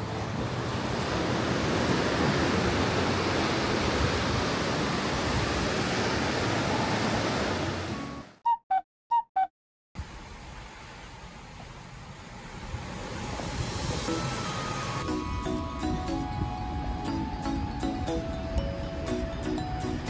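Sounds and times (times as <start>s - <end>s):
steady rushing noise: 10.0s - 20.0s.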